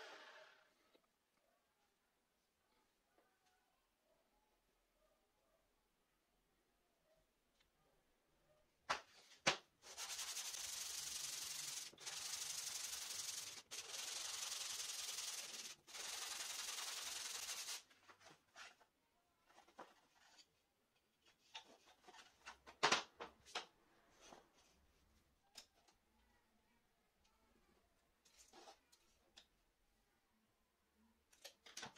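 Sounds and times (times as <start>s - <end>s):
wooden block rubbing on sandpaper: 9.8s - 17.8s.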